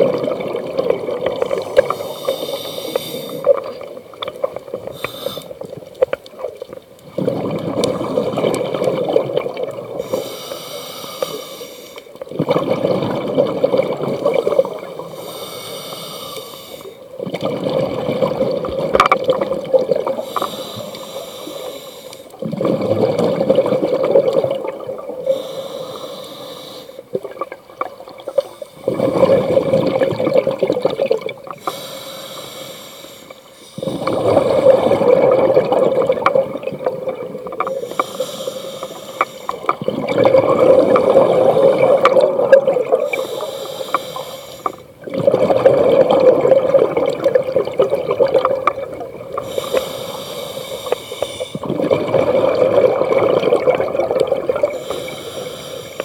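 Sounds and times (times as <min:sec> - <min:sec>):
exhaled bubbles gurgling underwater: 0:00.0 - 0:56.0
diver inhaling through regulator: 0:01.4 - 0:03.6, 0:04.9 - 0:05.7, 0:10.0 - 0:12.1, 0:14.6 - 0:17.1, 0:20.2 - 0:22.4, 0:25.2 - 0:27.1, 0:31.6 - 0:35.4, 0:37.6 - 0:39.7, 0:43.0 - 0:44.9, 0:49.3 - 0:51.8, 0:54.2 - 0:56.0.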